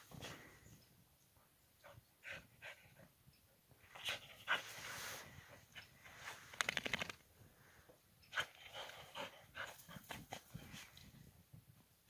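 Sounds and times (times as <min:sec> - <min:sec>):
quick clicks: 0:06.5 - 0:07.2.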